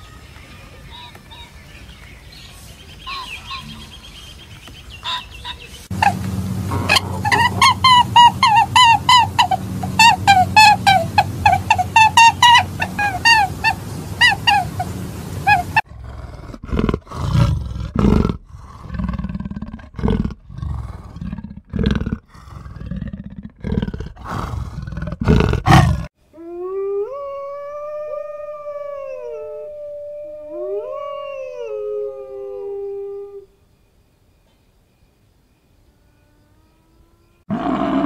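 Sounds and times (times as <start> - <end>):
goose honking: 5.0 - 15.8
cheetahs growling: 5.9 - 13.4, 15.4 - 26.1
wolfdogs howling: 5.9 - 15.8, 26.4 - 33.4.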